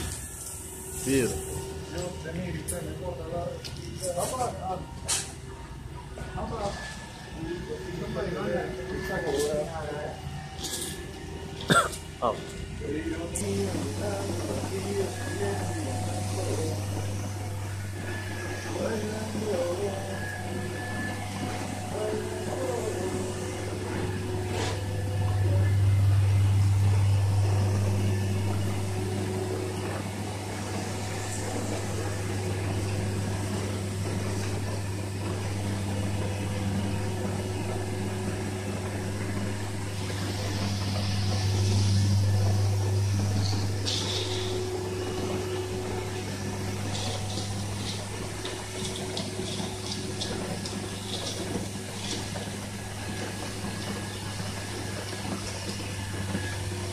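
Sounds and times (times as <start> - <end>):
blowing rig humming: 13.4 - 56.9.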